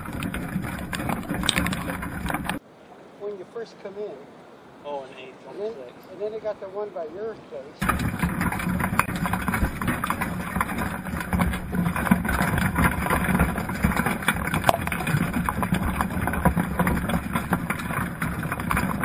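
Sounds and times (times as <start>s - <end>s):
underwater crackling: 0.0s - 2.6s, 7.8s - 19.0s
low underwater hum: 8.1s - 18.7s.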